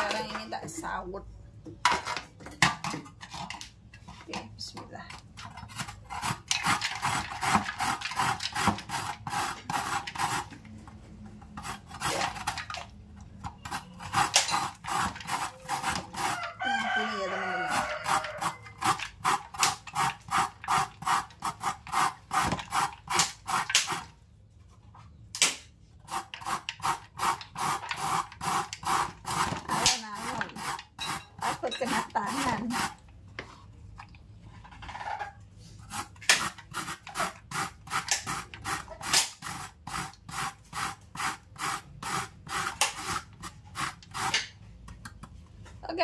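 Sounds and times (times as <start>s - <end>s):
cassava rasping on metal grater: 5.5s - 10.6s, 11.5s - 12.8s, 13.6s - 24.1s, 26.0s - 33.1s, 35.8s - 44.6s.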